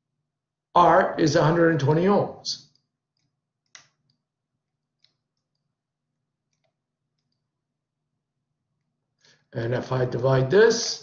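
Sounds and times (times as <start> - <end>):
faint clicks: 2.6 - 5.7, 6.5 - 7.5.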